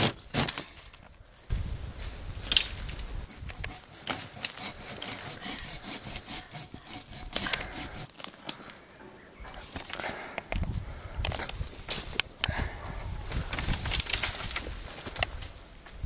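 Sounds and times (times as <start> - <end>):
rustling foliage: 0.0 - 16.0
stems and twigs snapping: 2.4 - 3.7, 7.3 - 8.8, 13.3 - 15.5.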